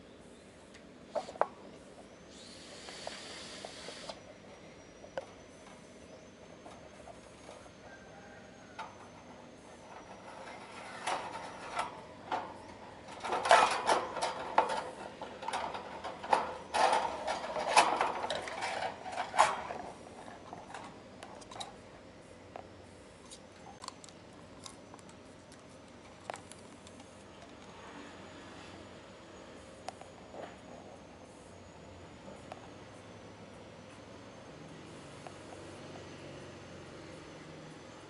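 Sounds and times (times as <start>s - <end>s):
wire cage rattling: 10.1s - 19.9s.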